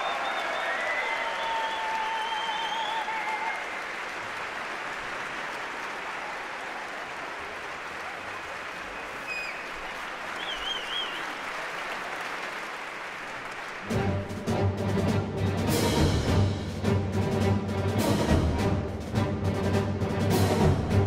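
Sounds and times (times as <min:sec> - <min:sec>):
audience applauding: 0:00.0 - 0:14.5
warbling whistle: 0:10.4 - 0:11.2.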